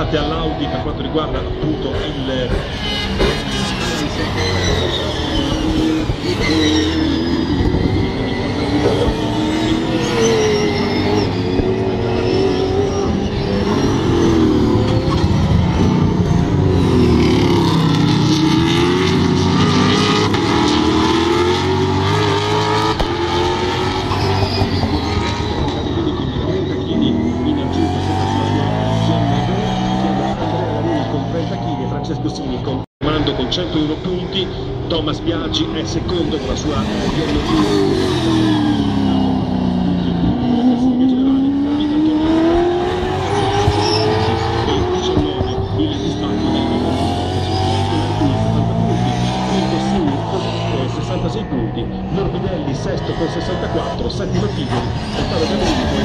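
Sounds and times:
race car engines accelerating: 0.0 - 56.0.

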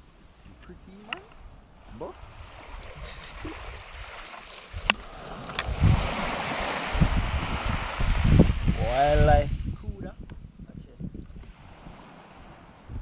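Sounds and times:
surf over pebble beach: 0.9 - 9.6
wind buffeting microphone: 1.2 - 13.0.

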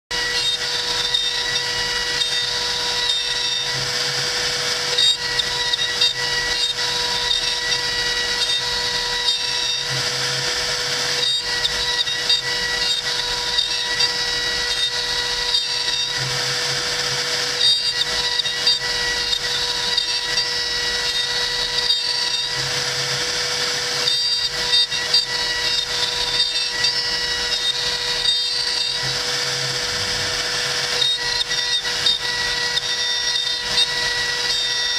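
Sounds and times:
bit cutting into hardwood: 0.1 - 34.9
router spindle high whine: 0.1 - 34.9.

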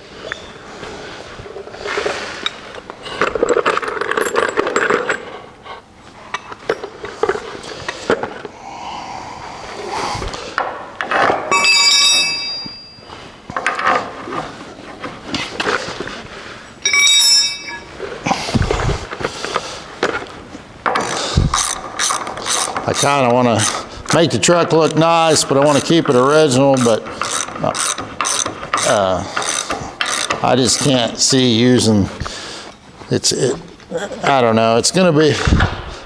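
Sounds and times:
bright metallic ringing: 11.5 - 13.1, 16.8 - 18.0
tools clinking against steel: 11.5 - 13.1, 16.8 - 17.9, 21.0 - 31.0.

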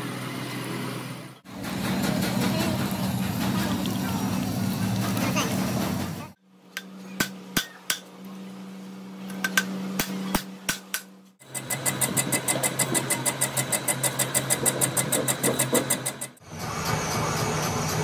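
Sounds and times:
machine rapid even knocking: 11.4 - 16.4.

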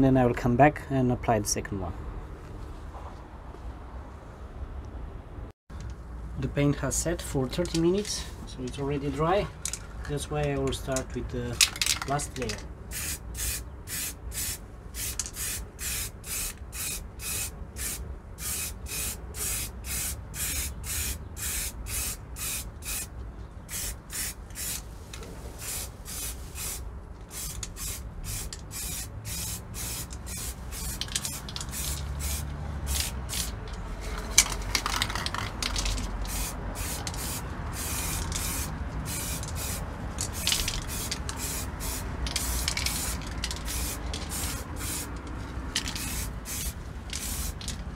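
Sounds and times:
spray can hissing: 12.9 - 23.1, 23.7 - 24.8, 25.6 - 33.6, 36.2 - 45.1, 45.8 - 47.7.

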